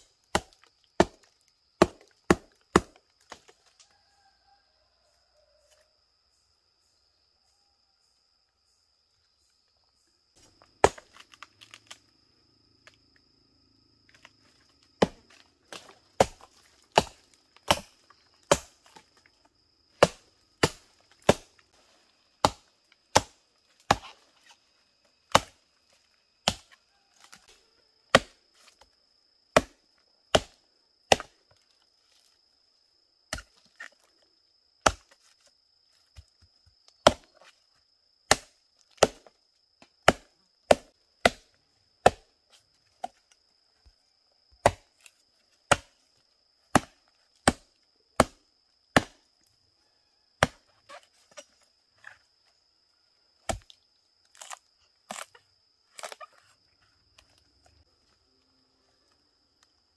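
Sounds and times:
high insect drone: 0.0s - 59.9s
machete chopping wood: 0.3s - 3.5s, 10.8s - 12.0s, 15.0s - 19.0s, 20.0s - 21.6s, 22.4s - 24.2s, 25.3s - 25.6s, 26.4s - 27.4s, 28.1s - 28.4s, 29.5s - 31.4s, 33.3s - 34.0s, 34.8s - 35.2s, 37.0s - 37.4s, 38.3s - 39.3s, 40.0s - 42.4s, 44.6s - 45.1s, 45.7s - 46.0s, 46.7s - 49.2s, 50.4s - 50.7s, 53.4s - 55.4s.

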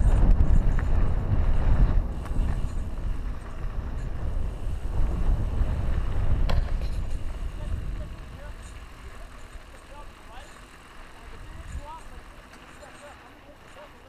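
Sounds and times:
wind buffeting microphone: 0.0s - 12.4s
bike tyres rolling on dirt: 0.0s - 14.0s.

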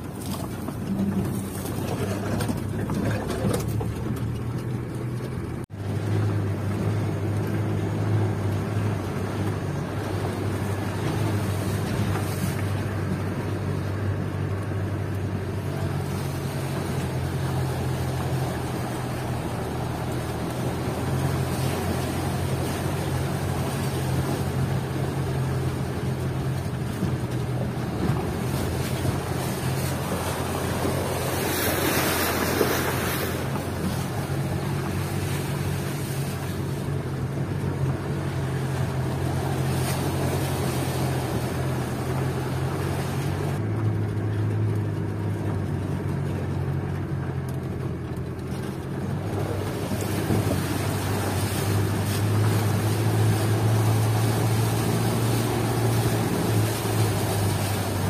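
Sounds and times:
diesel engine droning: 0.0s - 58.0s
mud and water splashing: 0.0s - 58.0s.

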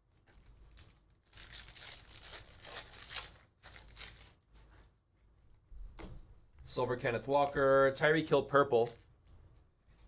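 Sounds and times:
foil wrapper tearing and crinkling: 0.6s - 4.4s.

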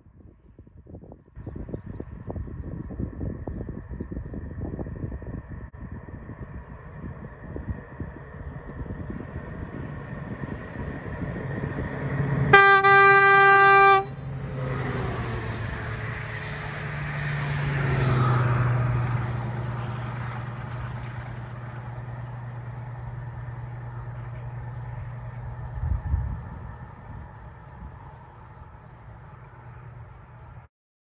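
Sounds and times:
diesel train passing: 4.3s - 30.7s
train horn blast: 12.2s - 14.5s.

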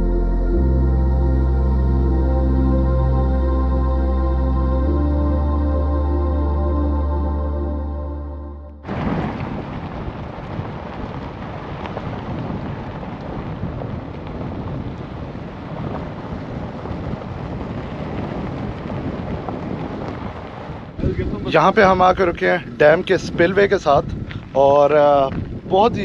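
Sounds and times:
wind buffeting microphone: 8.8s - 26.0s.

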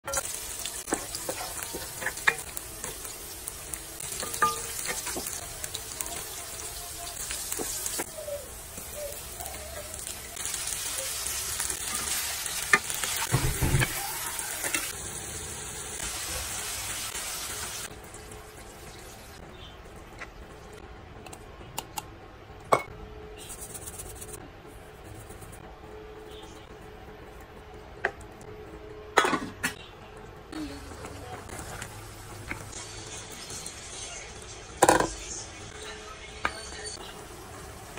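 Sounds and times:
food sizzling in hot oil: 0.1s - 19.4s, 30.7s - 35.1s.

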